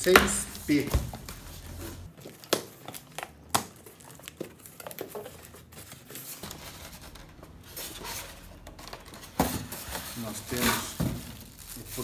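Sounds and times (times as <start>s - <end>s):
polystyrene packing creaking: 1.6s - 12.0s.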